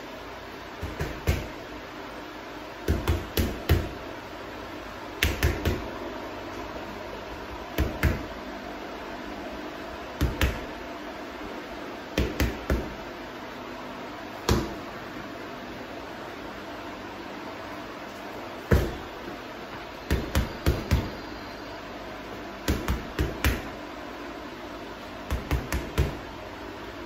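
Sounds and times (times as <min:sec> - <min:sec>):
punches thudding on heavy bag: 0:00.8 - 0:01.6, 0:14.4 - 0:14.8, 0:18.7 - 0:19.1.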